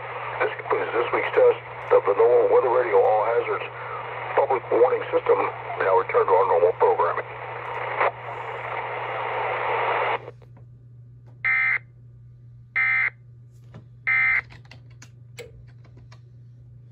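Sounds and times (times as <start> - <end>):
radio hiss: 0.0 - 10.3
steady low hum: 0.0 - 16.9.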